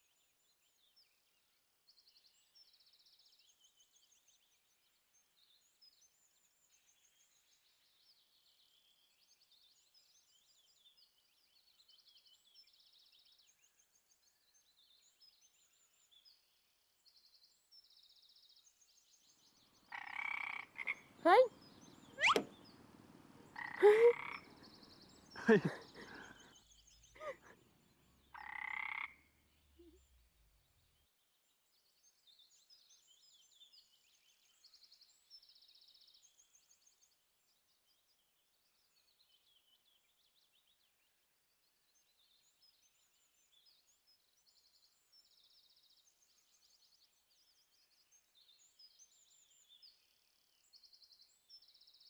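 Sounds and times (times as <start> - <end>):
frogs trilling: 23.6 - 24.5.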